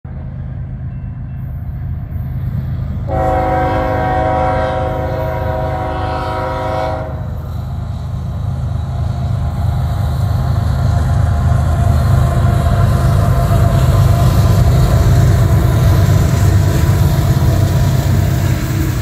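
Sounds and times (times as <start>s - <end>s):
freight train rumbling: 0.0s - 19.0s
locomotive air horn: 3.1s - 7.4s.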